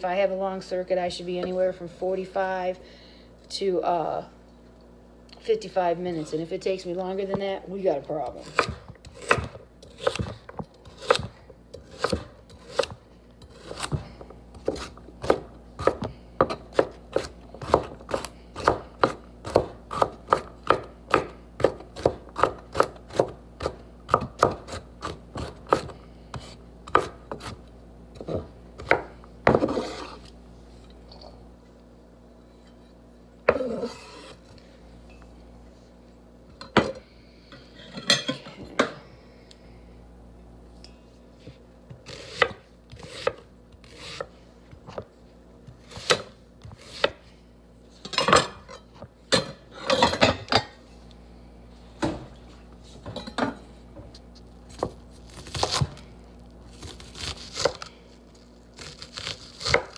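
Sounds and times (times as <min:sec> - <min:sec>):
knife chopping on wooden board: 0:08.4 - 0:14.0, 0:14.6 - 0:25.9, 0:26.9 - 0:27.6, 0:28.2 - 0:30.2
knife scraping board: 0:29.5 - 0:30.3, 0:33.5 - 0:34.4.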